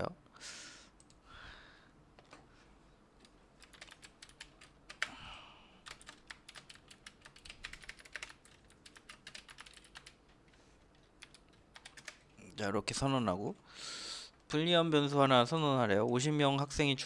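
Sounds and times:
typing on computer keyboard: 3.2 - 5.2, 5.8 - 12.2.

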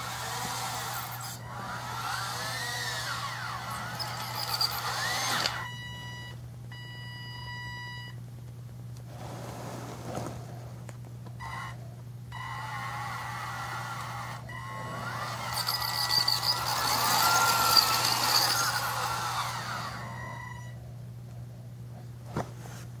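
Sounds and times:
small motors whining: 0.0 - 6.1, 11.4 - 20.8
steady low hum: 0.0 - 23.0.

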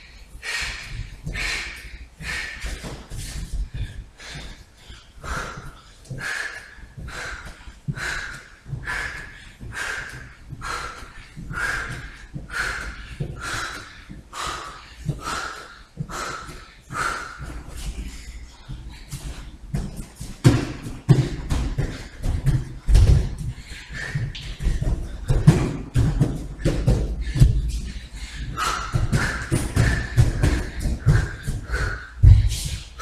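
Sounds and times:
man breathing hard: 0.0 - 33.0
hands and feet thudding on mat: 19.4 - 23.6.

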